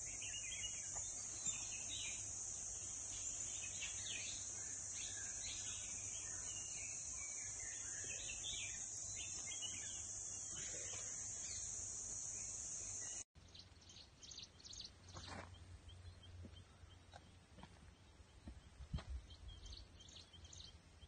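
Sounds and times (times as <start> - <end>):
high-pitched insect drone: 0.0 - 13.2.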